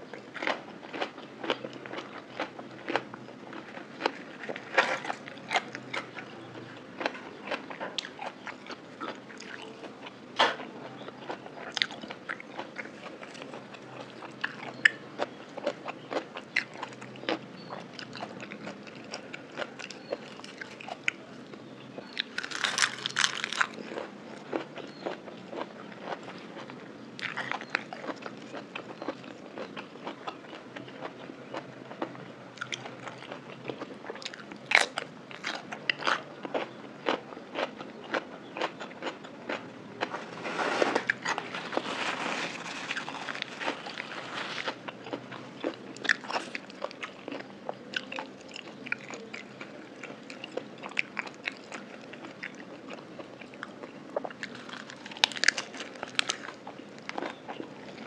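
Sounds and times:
crunchy bites and wet chewing: 22.0 - 40.2, 40.8 - 58.0.

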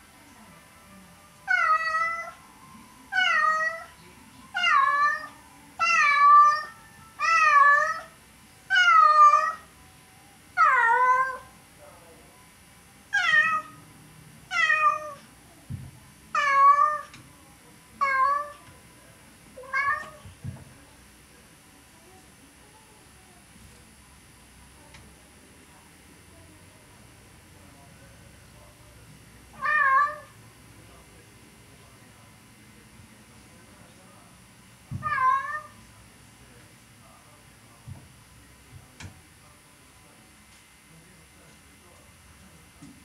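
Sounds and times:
cats meowing: 1.5 - 2.4, 3.1 - 3.9, 4.6 - 9.7, 10.6 - 11.5, 13.1 - 13.8, 14.5 - 15.2, 16.4 - 17.2, 18.0 - 18.6, 19.6 - 20.4, 29.5 - 30.3, 34.9 - 35.8.

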